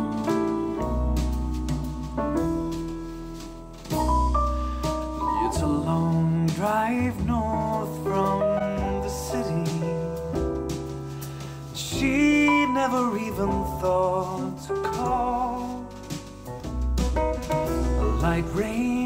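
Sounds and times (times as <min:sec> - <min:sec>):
piano chords: 0:00.0 - 0:19.0
person singing: 0:05.3 - 0:10.3, 0:11.7 - 0:16.0, 0:17.7 - 0:19.0.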